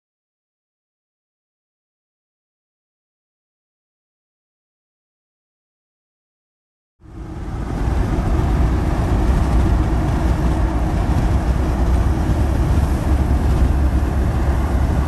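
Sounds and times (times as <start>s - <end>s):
road noise inside car: 7.0s - 15.0s.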